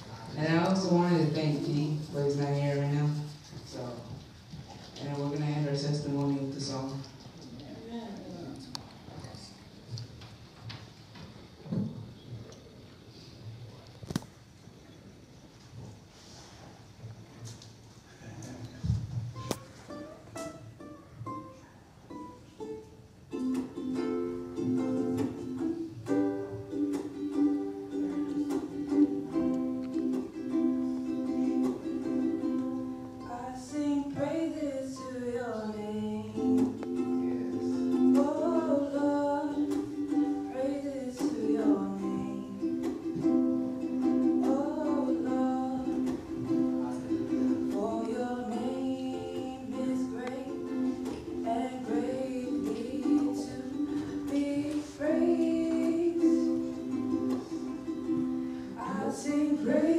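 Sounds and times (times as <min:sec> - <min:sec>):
ukulele strumming chords: 0:00.0 - 0:03.4, 0:19.3 - 0:59.9
person singing: 0:26.1 - 0:59.9.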